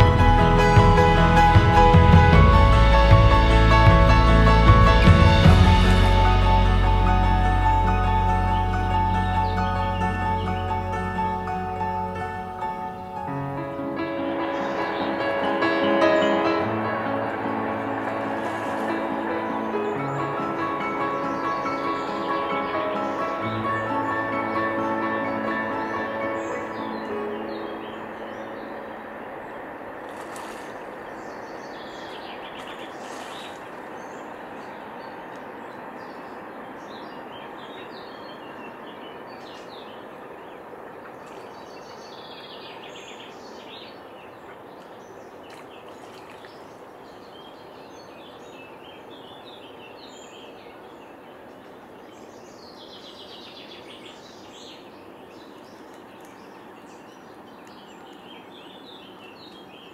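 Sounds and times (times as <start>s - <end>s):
outdoor background hiss: 5.3s - 59.9s
small birds chirping: 25.8s - 59.9s.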